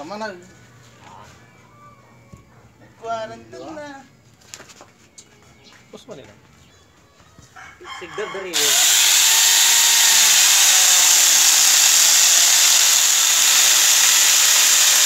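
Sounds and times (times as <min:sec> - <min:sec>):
chainsaw cutting into log: 0:08.5 - 0:15.0.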